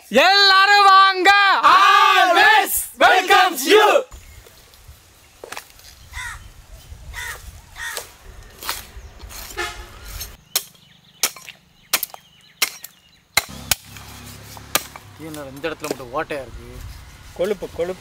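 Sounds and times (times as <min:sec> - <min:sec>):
crows cawing: 0:06.1 - 0:06.4, 0:07.2 - 0:08.1
cleaver chopping meat on wood: 0:10.6 - 0:14.0, 0:14.6 - 0:15.1.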